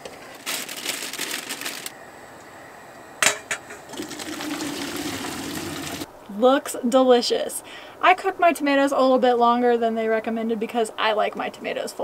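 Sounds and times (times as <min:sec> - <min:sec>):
food poured from plastic bag: 0:00.3 - 0:01.9
metal cookware clanks: 0:03.2 - 0:03.9
water pouring into metal colander: 0:03.9 - 0:06.1.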